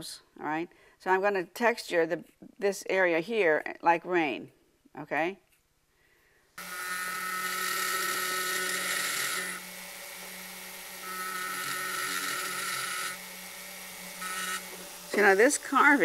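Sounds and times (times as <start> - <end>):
rotary tool whining: 6.6 - 16.0.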